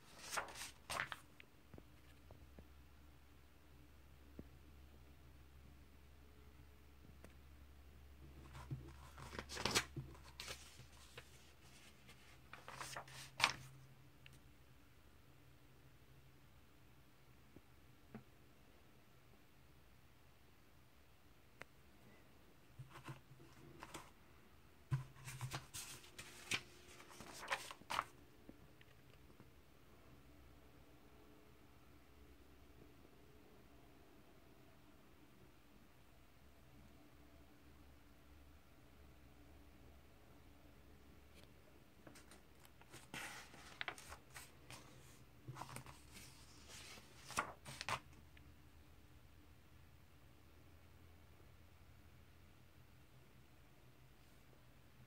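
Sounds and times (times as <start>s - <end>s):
paper pages rustling: 0.0s - 1.3s, 8.4s - 13.8s, 22.8s - 24.2s, 24.9s - 28.1s, 42.0s - 48.1s.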